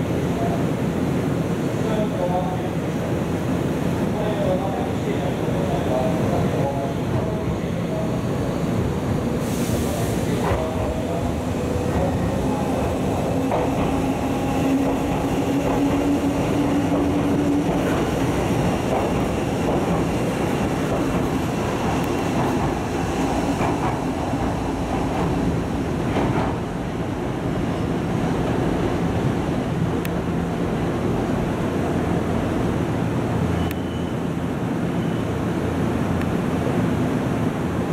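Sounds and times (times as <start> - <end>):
train wheels clicking on rail joints: 11.8 - 26.8.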